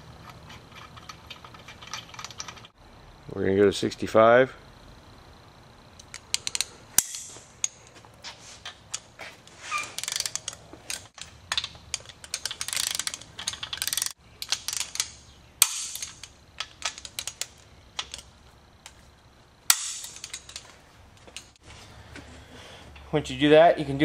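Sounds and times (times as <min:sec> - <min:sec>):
sharp loud wrench clicks: 0:00.2 - 0:02.8, 0:06.0 - 0:07.9, 0:09.7 - 0:18.3, 0:19.7 - 0:20.6
ratchet wrench clicking: 0:06.0 - 0:07.9, 0:09.7 - 0:18.3.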